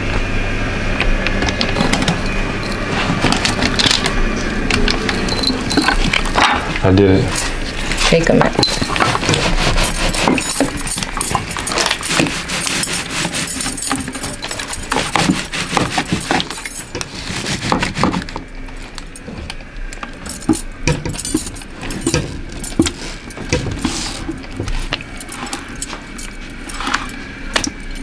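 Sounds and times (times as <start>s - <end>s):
spatula scraping plastic bucket: 7.8s - 18.3s.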